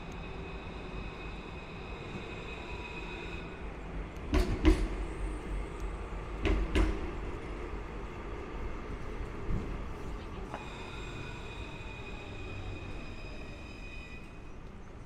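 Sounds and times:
tram rumbling past: 0.0s - 15.0s
tram wheel clacks: 6.3s - 7.6s.

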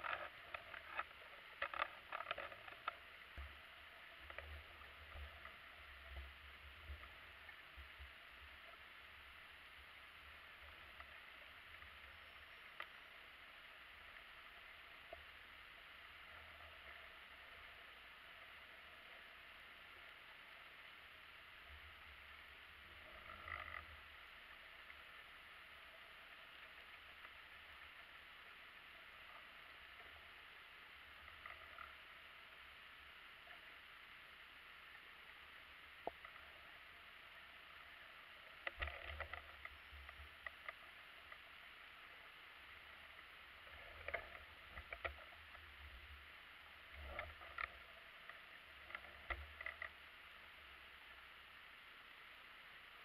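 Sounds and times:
faint steady hiss: 0.0s - 53.0s.

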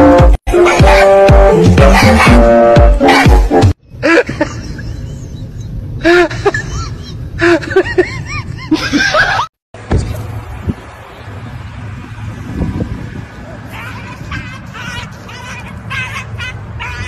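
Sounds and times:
person giggling: 4.0s - 5.4s, 6.0s - 9.5s.

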